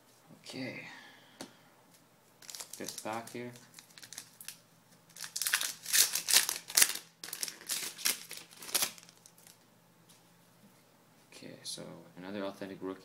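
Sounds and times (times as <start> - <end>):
foil wrapper crinkling: 2.4 - 9.6.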